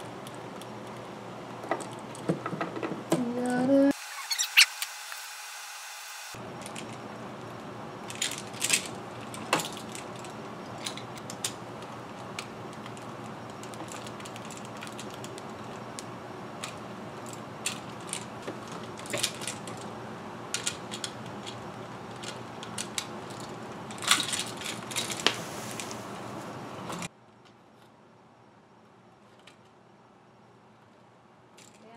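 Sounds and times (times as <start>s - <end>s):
steady hiss: 24.0s - 27.1s.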